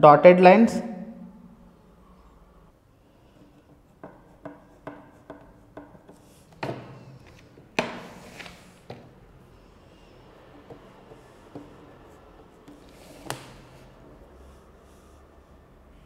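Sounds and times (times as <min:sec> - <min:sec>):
pencil tapping on paper: 0:03.3 - 0:06.9, 0:10.4 - 0:13.6
ruler knocking: 0:04.0 - 0:07.0
ruler scraping across paper: 0:07.2 - 0:08.9, 0:09.6 - 0:15.2.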